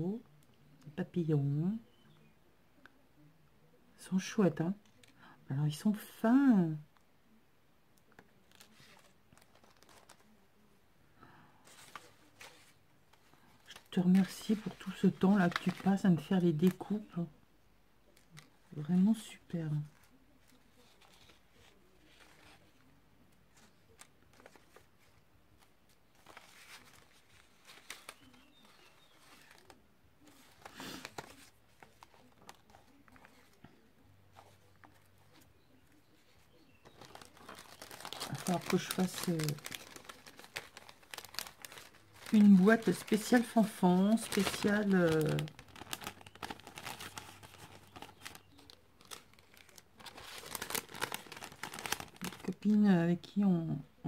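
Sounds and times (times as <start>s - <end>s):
paper rustling and ticking: 8.1s - 10.4s, 11.7s - 16.9s, 19.8s - 52.6s.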